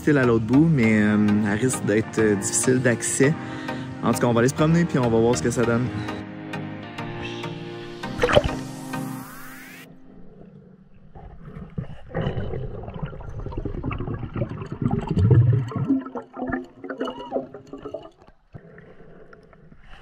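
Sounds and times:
underwater bubbling: 8.0s - 9.0s, 9.9s - 20.0s
muffled underwater rumbling: 11.0s - 20.0s.

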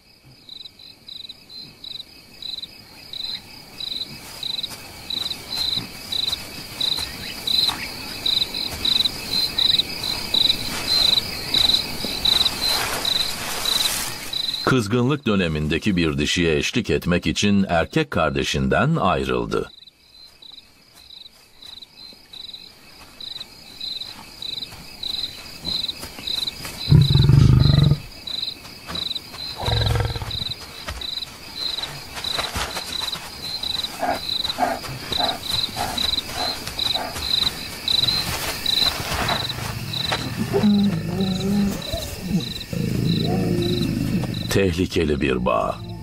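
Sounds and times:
crickets chirping: 0.0s - 46.0s
lions growling: 26.9s - 28.1s, 29.6s - 30.6s, 34.0s - 37.3s, 39.0s - 46.0s.

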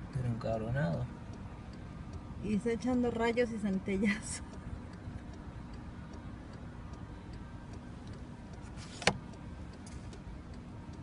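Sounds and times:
faint regular ticking: 0.0s - 11.0s
low background rumble: 0.0s - 11.0s
sharp click: 8.1s - 10.2s.

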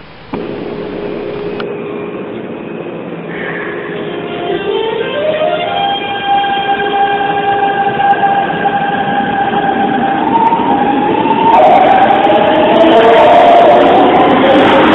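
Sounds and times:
electric train motor whine: 0.0s - 2.7s
train running noise: 0.0s - 14.9s.

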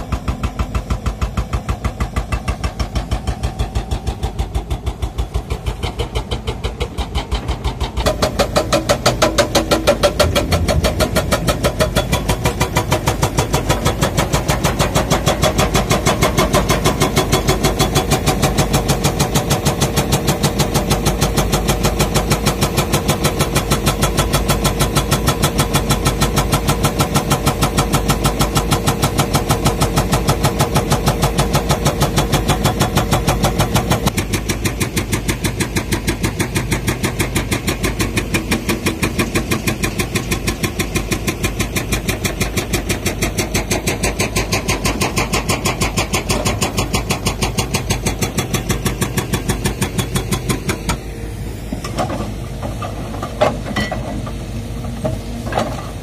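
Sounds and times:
hydraulic breaker hammering rock: 0.0s - 51.1s
diesel engine running: 0.0s - 56.0s
scattered knocks: 8.1s - 14.0s.

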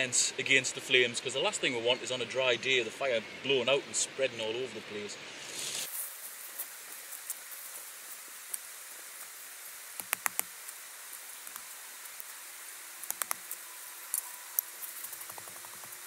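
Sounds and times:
shovel scraping soil: 5.4s - 6.1s.

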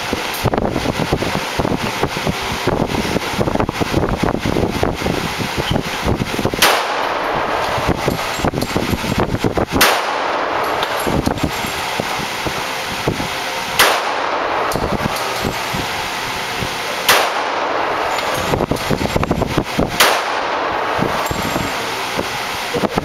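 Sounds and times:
pistol shots: 6.6s - 9.1s, 9.7s - 21.9s.

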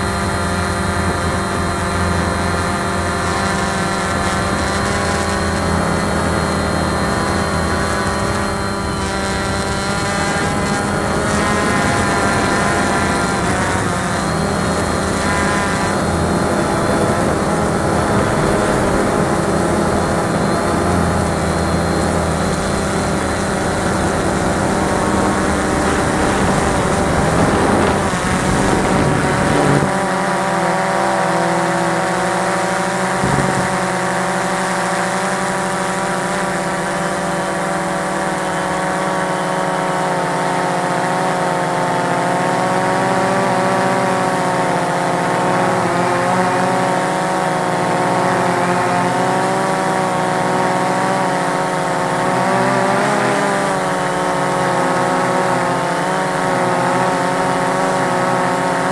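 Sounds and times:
quadcopter motors whining: 0.0s - 58.9s.

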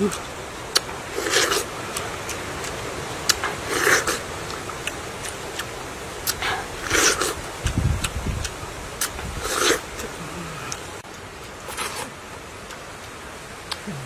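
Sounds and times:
mouth clicks and smacks: 0.0s - 14.0s
wet slurping bites: 3.3s - 4.3s, 4.9s - 10.8s.

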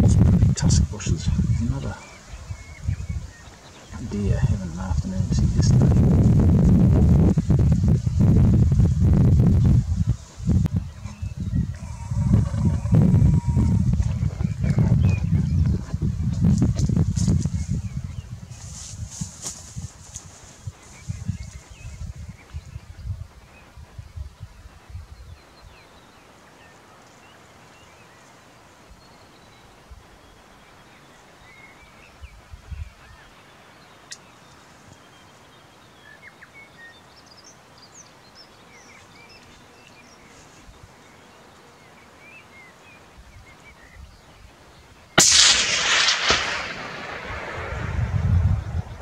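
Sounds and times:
faint bird chirps: 10.0s - 16.4s
rifle shot with echo: 45.2s - 49.0s.

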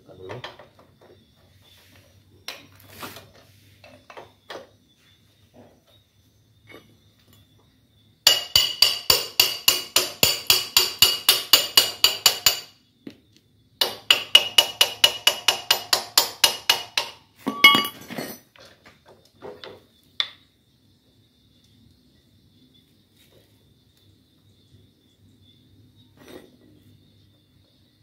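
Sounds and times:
metal rattle and light knocks: 17.4s - 19.9s.

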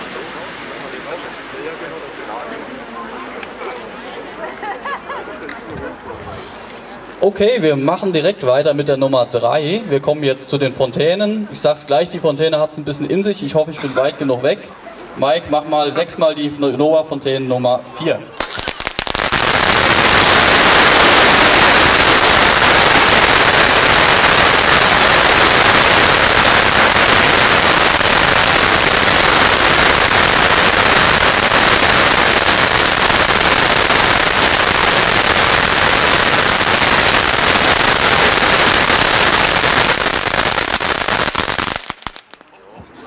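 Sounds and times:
fireworks crackling hiss: 18.4s - 42.5s.

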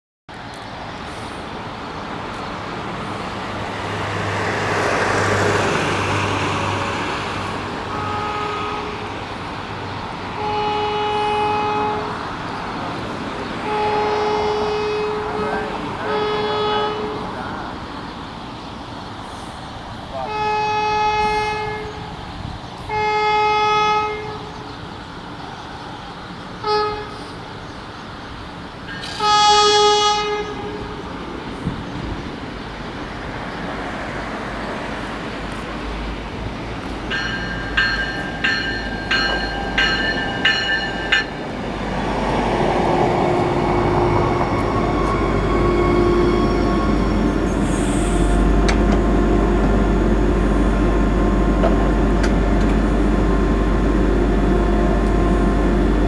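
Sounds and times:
passing road traffic: 0.3s - 56.0s
train horn blasts: 7.9s - 9.2s, 10.4s - 12.2s, 13.6s - 17.4s, 20.2s - 22.1s, 22.9s - 24.6s, 26.6s - 27.3s, 29.0s - 31.0s, 43.3s - 52.8s.

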